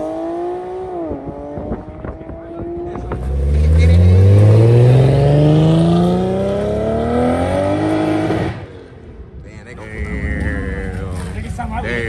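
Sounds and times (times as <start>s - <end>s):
car engine accelerating hard: 0.0s - 8.7s.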